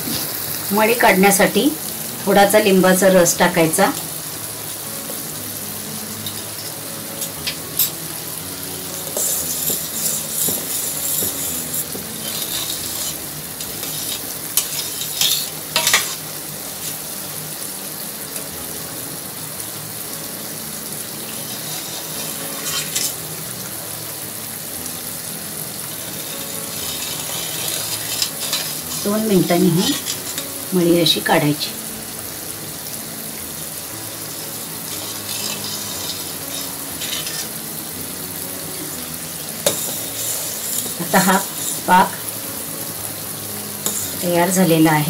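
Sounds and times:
spoon scraping a metal pot: 9.0 - 16.2, 21.4 - 23.2, 26.1 - 30.6, 34.9 - 37.6, 39.6 - 41.9, 43.8 - 44.2
syrup boiling in a pot: 25.8 - 29.1.

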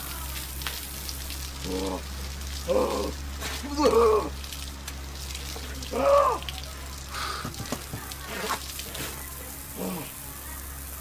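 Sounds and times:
water pouring and splashing: 0.0 - 11.0
person exclaiming: 2.6 - 4.4, 5.8 - 6.5.

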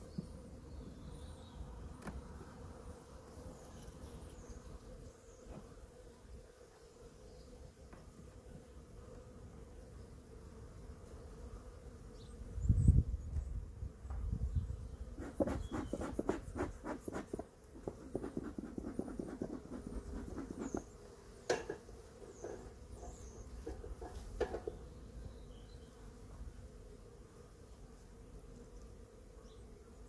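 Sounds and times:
honeybees humming: 14.5 - 30.0
bee smoker bellows puffing: 15.1 - 24.8.

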